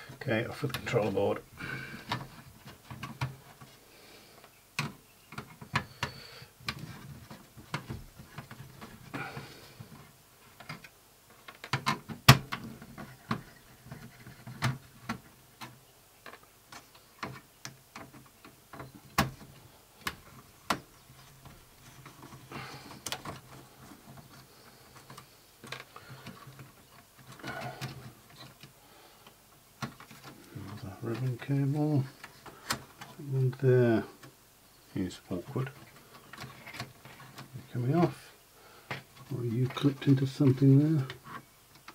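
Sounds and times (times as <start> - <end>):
soft rustles: 12.6 - 41.9.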